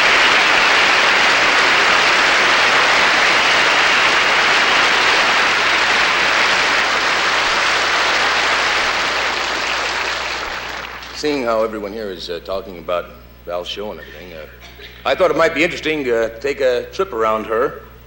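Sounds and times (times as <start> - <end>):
large audience applauding: 0.0 - 11.4.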